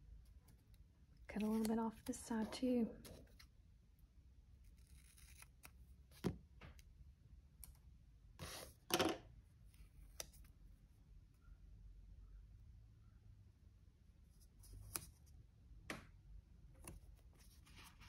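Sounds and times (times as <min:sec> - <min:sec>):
scissors cutting paper: 0:01.4 - 0:03.4
paper handling: 0:01.4 - 0:03.5.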